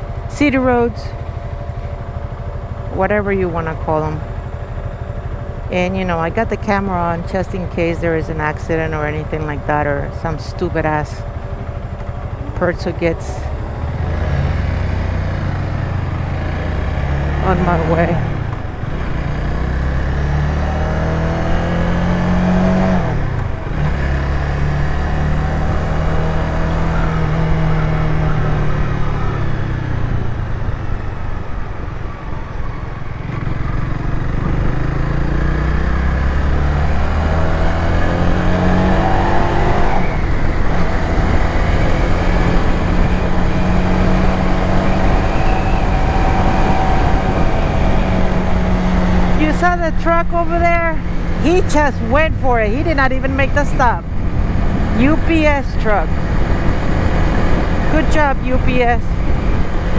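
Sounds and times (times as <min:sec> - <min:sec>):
motorcycle engine accelerating: 0:00.0 - 0:59.9
wind noise: 0:37.4 - 0:59.9.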